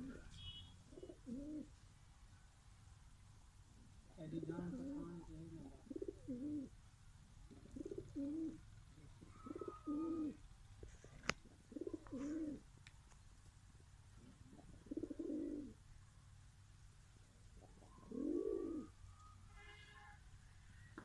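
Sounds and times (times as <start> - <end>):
pigeons cooing: 0.0 - 0.3, 0.9 - 1.7, 4.6 - 6.7, 7.5 - 12.6, 14.2 - 15.8, 17.6 - 19.0.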